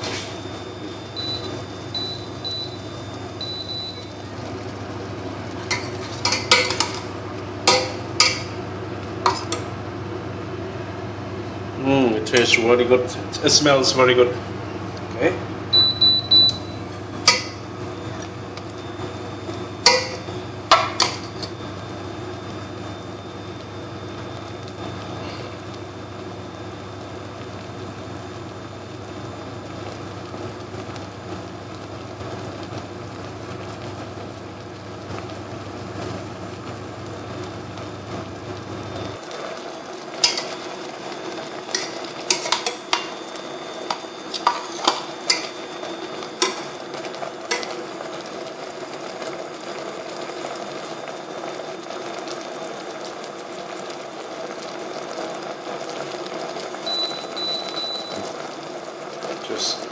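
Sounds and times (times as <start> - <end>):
meat sizzling in a pan: 0.0 - 9.8, 14.8 - 59.9
utensil scraping a pan: 5.6 - 7.1, 9.2 - 9.6.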